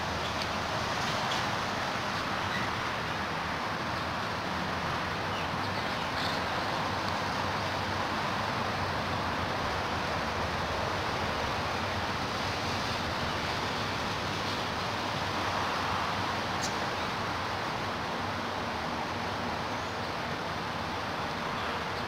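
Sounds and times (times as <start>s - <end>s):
steady outdoor rushing noise: 0.0s - 22.0s.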